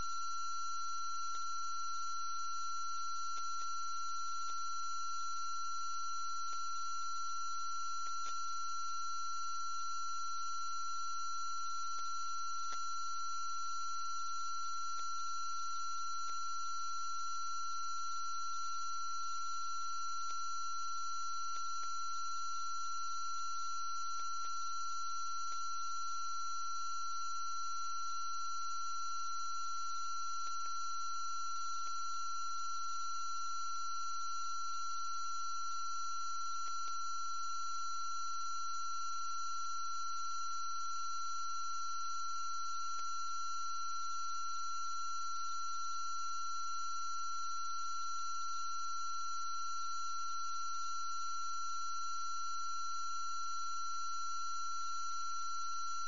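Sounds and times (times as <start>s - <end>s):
faint ticks: 3.3s - 3.8s, 8.0s - 8.5s, 11.9s - 13.0s, 14.9s - 15.2s, 16.2s - 16.5s, 21.4s - 22.0s, 25.4s - 25.7s.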